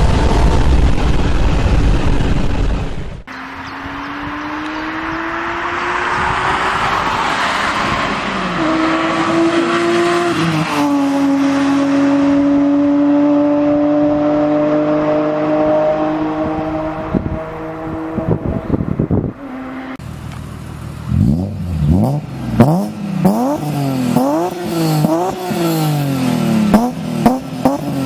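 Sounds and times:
rushing noise: 0.0 - 12.6
car engine passing by: 3.3 - 20.0.

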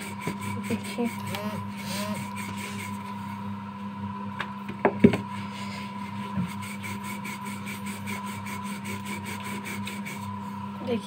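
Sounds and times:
steady hum: 0.0 - 11.0
rolling pin knocking on countertop: 4.7 - 5.3.

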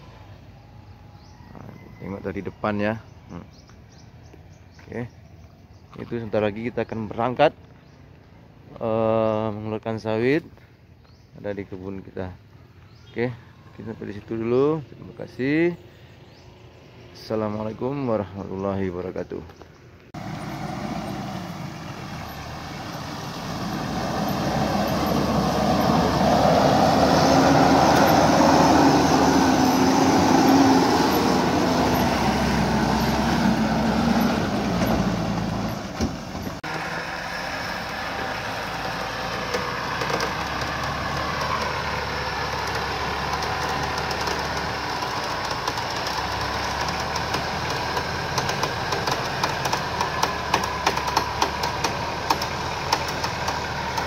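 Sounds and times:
truck engine running hard: 20.2 - 54.0.

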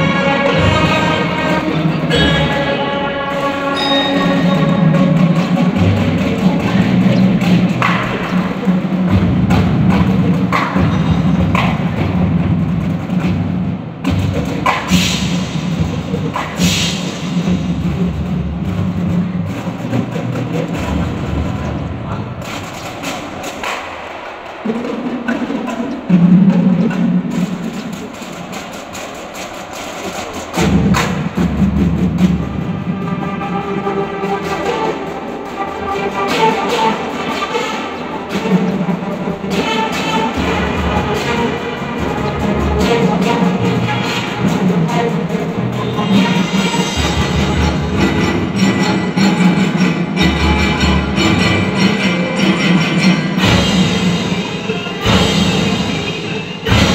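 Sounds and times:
loud low drum: 0.0 - 37.5, 38.3 - 56.9
marching band playing: 0.0 - 56.9
sharp drum hits: 53.4 - 56.9.

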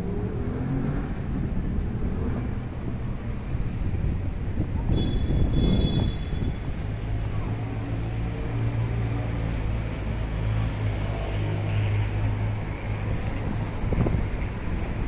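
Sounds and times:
low rumble of traffic: 0.0 - 15.0.

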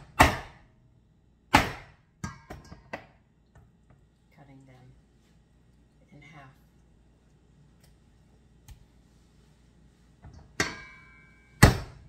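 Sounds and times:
mallet striking cleaver: 0.2 - 0.6.

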